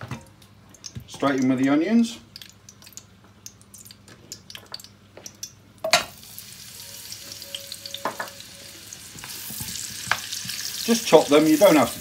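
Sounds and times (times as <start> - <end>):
ticking of warm fat: 0.3 - 5.8
onions sizzling in oil: 5.9 - 12.0.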